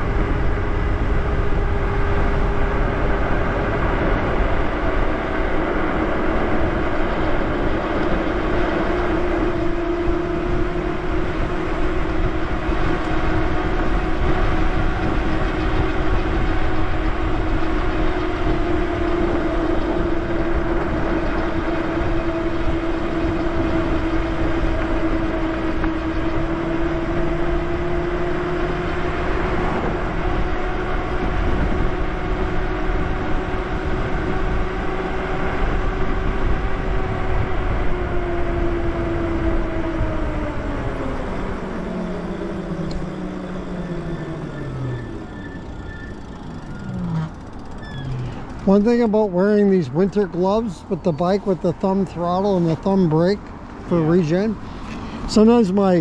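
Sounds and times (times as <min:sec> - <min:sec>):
electric motor whine: 0:00.0 - 0:49.1
wind: 0:00.0 - 0:56.0.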